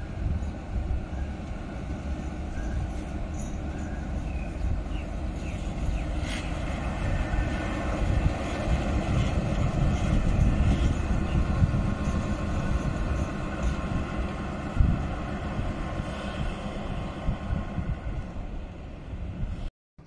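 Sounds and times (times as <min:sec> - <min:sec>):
locomotive engine rumbling: 0:00.0 - 0:19.7.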